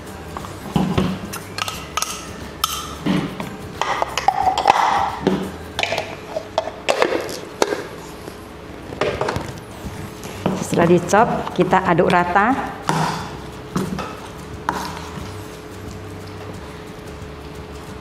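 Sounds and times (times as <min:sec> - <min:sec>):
clinks and knocks of bowls: 0:00.8 - 0:07.9
metal spoon scraping bowls: 0:01.2 - 0:15.7.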